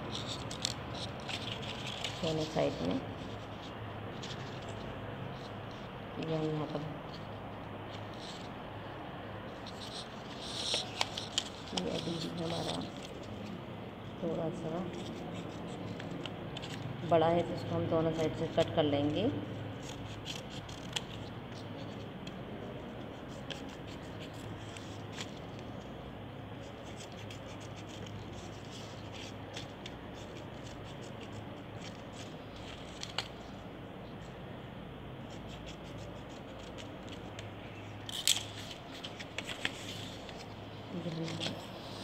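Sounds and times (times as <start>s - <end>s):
paper rustling: 0.1s - 6.8s, 9.6s - 13.6s, 19.7s - 22.1s, 23.0s - 25.9s, 26.6s - 33.6s, 35.2s - 42.0s
scissors snipping paper: 19.1s - 22.4s.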